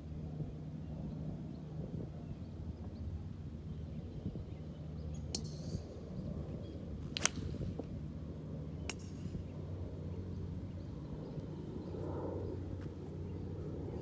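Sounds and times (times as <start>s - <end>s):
steady low hum: 0.0s - 14.0s
golf club striking ball: 7.1s - 7.6s.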